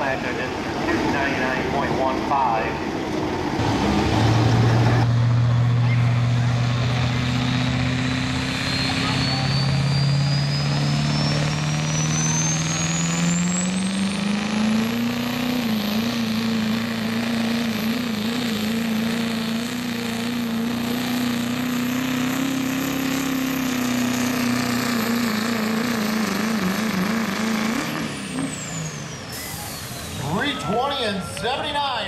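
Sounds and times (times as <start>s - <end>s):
pickup truck engine running hard: 0.0s - 30.4s
turbocharger whistle: 7.5s - 19.0s, 22.3s - 31.4s.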